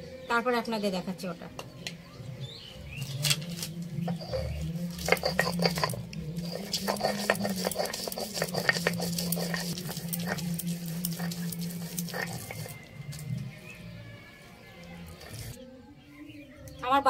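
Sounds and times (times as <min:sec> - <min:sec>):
stone grinding on stone: 0:03.2 - 0:13.5, 0:15.1 - 0:15.6.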